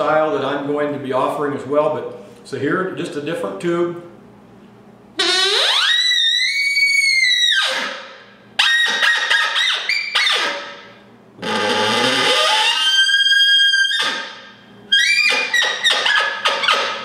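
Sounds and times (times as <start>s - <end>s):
elk call bugling: 5.2s - 8.0s, 8.6s - 17.0s.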